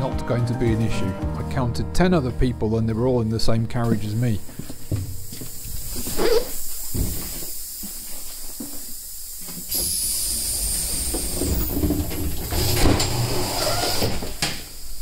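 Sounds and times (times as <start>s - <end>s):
train hiss with low rumble: 2.8s - 15.0s.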